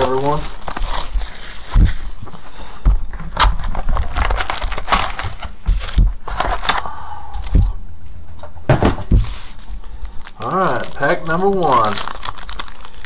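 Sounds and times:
foil packs rustling and crinkling: 0:00.0 - 0:02.6, 0:03.3 - 0:06.8, 0:09.1 - 0:13.0
packs knocking on wooden table: 0:08.7 - 0:09.4.

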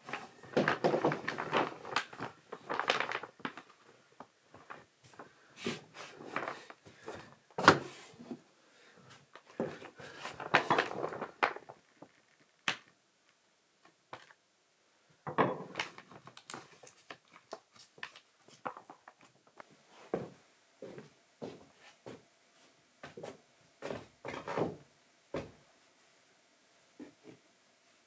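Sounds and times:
knocks and clunks of building work: 0:15.2 - 0:16.2, 0:23.1 - 0:25.6.

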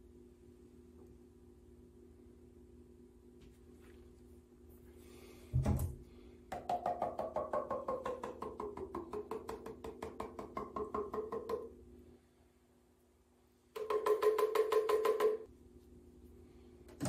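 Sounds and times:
plastic mould tapped rapidly: 0:06.5 - 0:11.7.

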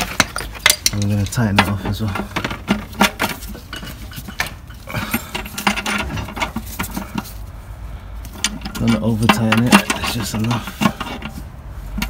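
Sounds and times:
wrench clinking and clicking: 0:00.0 - 0:01.6.

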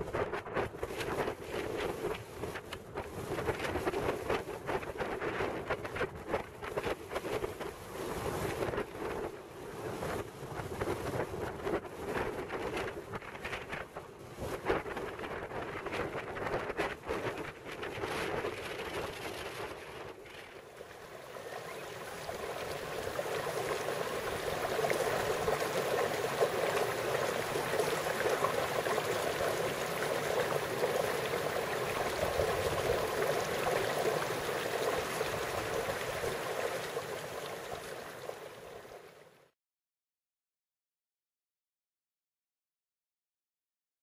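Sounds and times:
running water rushing: 0:20.4 - 0:39.4.

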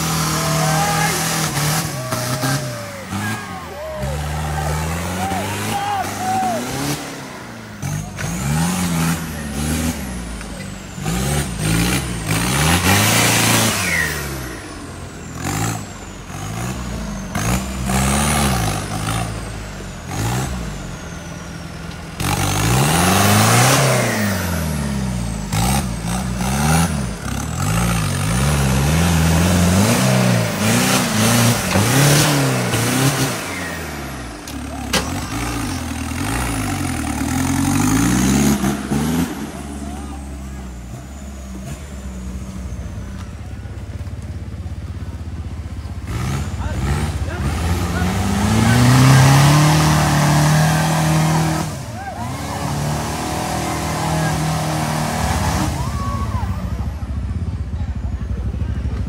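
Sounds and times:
diesel engine revving: 0:00.0 - 0:59.0.

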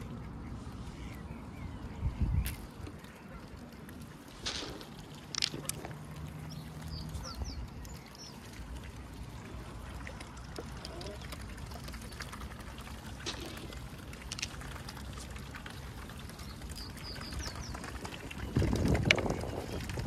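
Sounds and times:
light water sounds: 0:00.0 - 0:20.0
water splashing: 0:00.0 - 0:20.0.

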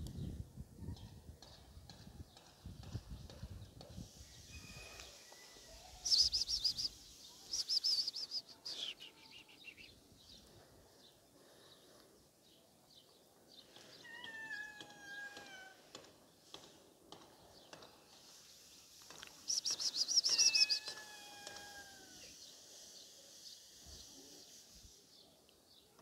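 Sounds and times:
high bird chirps: 0:04.3 - 0:10.0, 0:19.4 - 0:21.0
birds chirping: 0:04.5 - 0:15.6, 0:17.5 - 0:21.0
bird calls sliding down in pitch: 0:19.5 - 0:22.3.

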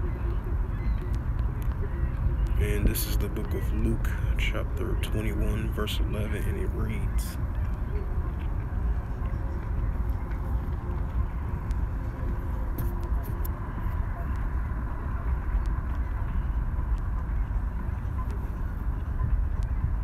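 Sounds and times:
low rumbling background noise: 0:00.0 - 0:20.0.

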